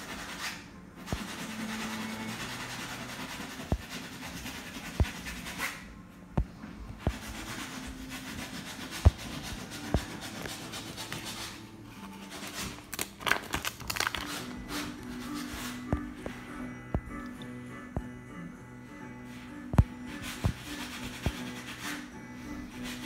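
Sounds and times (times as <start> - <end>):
finger rubbing on phone: 1.1 - 5.8, 6.4 - 12.9, 19.3 - 23.0.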